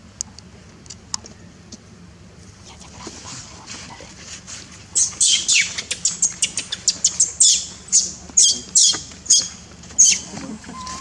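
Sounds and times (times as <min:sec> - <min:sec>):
baby monkey screaming: 0:05.0 - 0:10.3.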